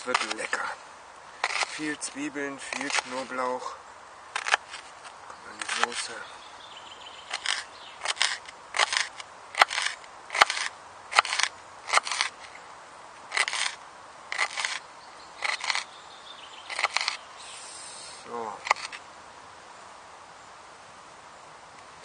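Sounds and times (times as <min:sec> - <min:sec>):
sharp clicks: 0:00.0 - 0:00.6, 0:01.4 - 0:02.0, 0:04.3 - 0:06.1, 0:07.3 - 0:12.6, 0:15.4 - 0:15.9, 0:16.7 - 0:17.2, 0:18.6 - 0:19.0.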